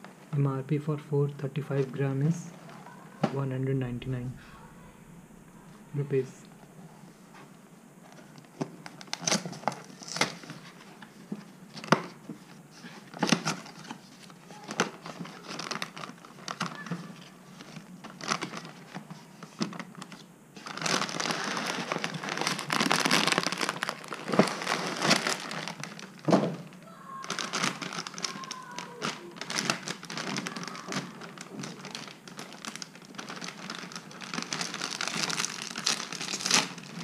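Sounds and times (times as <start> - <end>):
inner bag crinkling: 12.8 - 37.0.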